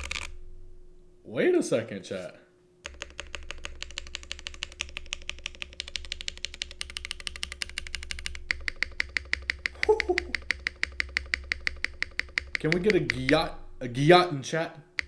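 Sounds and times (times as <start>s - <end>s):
fast typing on mechanical keyboard: 0.0s - 0.3s, 2.8s - 13.5s.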